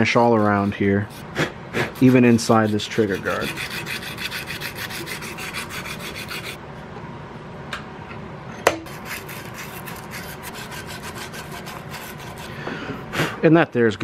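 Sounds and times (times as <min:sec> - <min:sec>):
sandpaper scraping metal: 0:00.0 - 0:06.6, 0:08.9 - 0:12.6.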